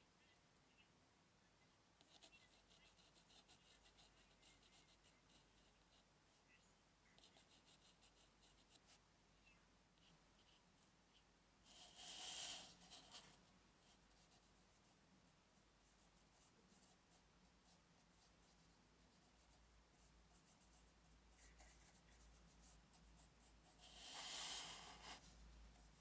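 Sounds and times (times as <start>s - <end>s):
brush scratching on paper: 2.0s - 6.4s, 11.7s - 15.0s, 15.8s - 26.0s.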